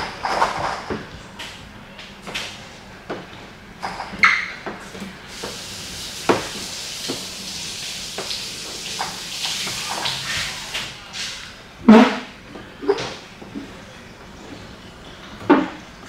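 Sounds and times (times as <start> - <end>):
squeegee hissing across wet film: 5.3 - 11.6.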